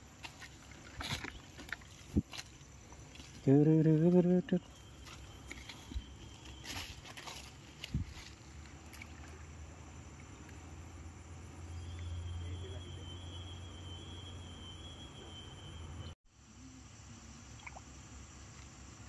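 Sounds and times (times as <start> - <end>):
high insect-like tone: 0.0 - 19.0
fish splashing at pond surface: 7.0 - 10.7, 17.2 - 19.0.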